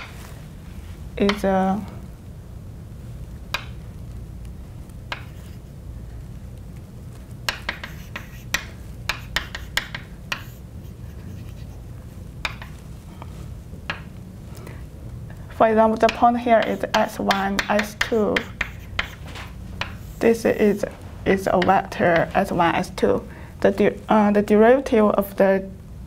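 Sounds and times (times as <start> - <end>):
steady low hum: 0.0 - 26.0
chalk tapping on blackboard: 1.2 - 1.4, 3.5 - 3.8, 5.1 - 5.6, 7.4 - 11.8, 12.4 - 12.8, 16.0 - 22.6.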